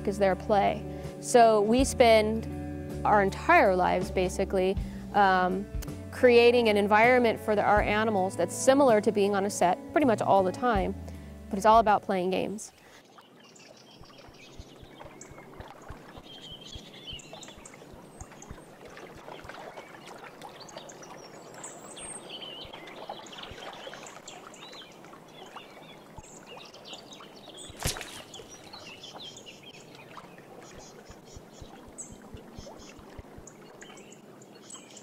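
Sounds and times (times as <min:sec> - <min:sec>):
small birds chirping: 0:12.3 - 0:35.0
ball splashing into water: 0:27.6 - 0:29.3.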